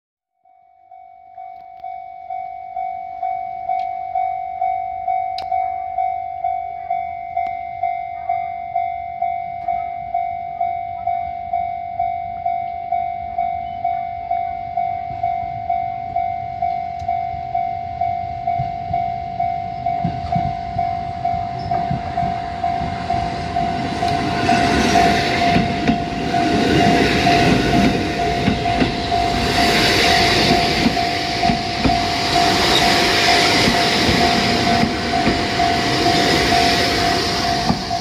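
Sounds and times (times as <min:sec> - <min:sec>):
crossing warning bell ringing: 0:00.4 - 0:38.0
train rumble approaching: 0:10.6 - 0:38.0.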